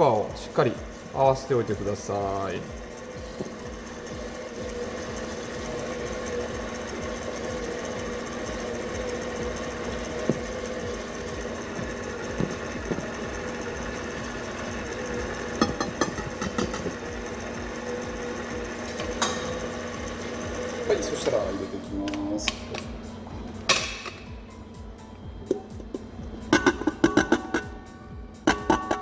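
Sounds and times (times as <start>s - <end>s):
machine hum: 0.0s - 29.0s
whisk tapping metal bowl: 6.2s - 17.1s, 25.5s - 27.8s, 28.4s - 29.0s.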